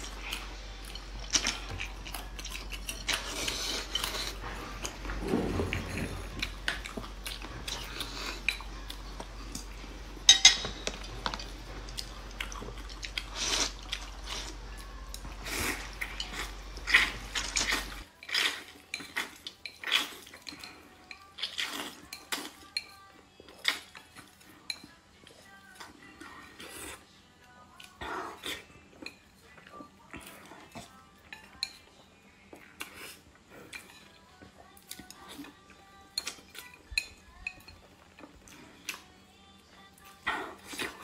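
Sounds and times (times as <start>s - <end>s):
food chewing: 0.0s - 41.0s
chopsticks clicking on bowls: 10.3s - 13.9s.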